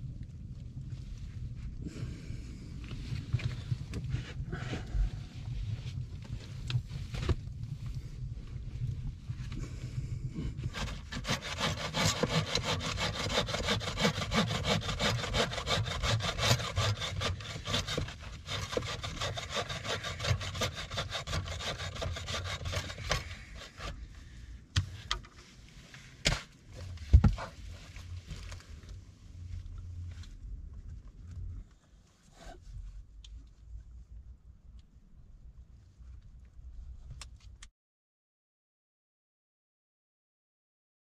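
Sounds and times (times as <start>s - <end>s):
bow saw cutting log: 10.6s - 24.0s.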